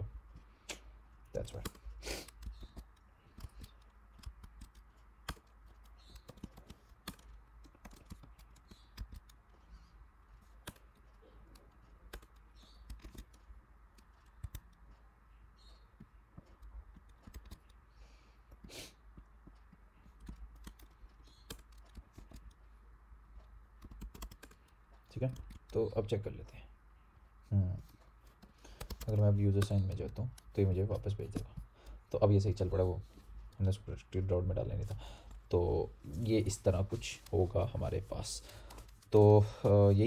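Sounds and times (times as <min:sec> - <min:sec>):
computer keyboard typing: 0:01.4 - 0:26.2, 0:27.9 - 0:32.7.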